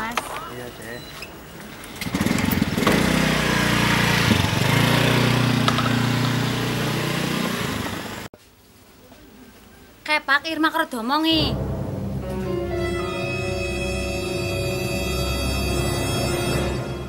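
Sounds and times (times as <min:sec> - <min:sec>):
motorcycle engine: 0:01.8 - 0:08.3.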